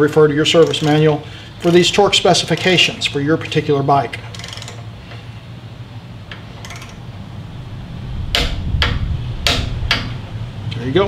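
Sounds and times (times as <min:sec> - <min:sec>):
torque wrench clicks: 0:00.5 - 0:01.9, 0:06.3 - 0:07.0
torque wrench ticking: 0:00.5 - 0:03.2.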